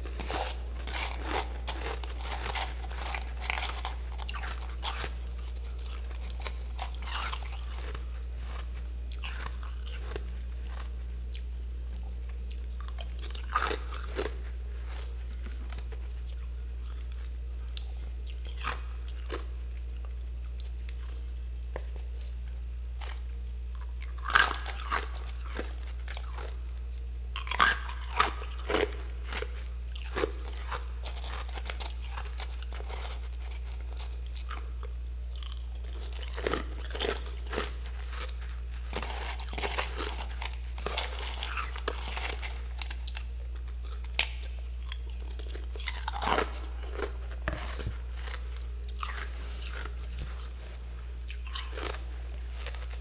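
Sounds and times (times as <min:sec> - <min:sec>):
crunching frost being chewed: 0:00.0 - 0:53.0
steady low hum: 0:00.0 - 0:53.0.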